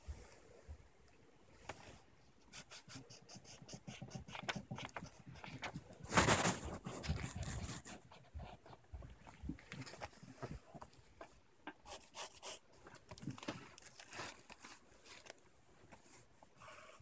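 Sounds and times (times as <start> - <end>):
pencil scratching on paper: 2.5 - 8.8, 11.9 - 12.6
paper rustle: 4.3 - 8.2, 12.9 - 16.1.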